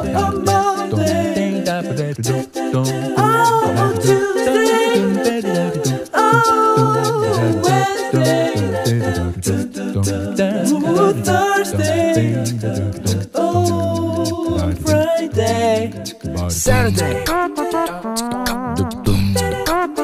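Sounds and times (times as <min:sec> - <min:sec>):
a cappella singing: 0:00.0 - 0:20.0
low bass pulse: 0:12.2 - 0:17.3.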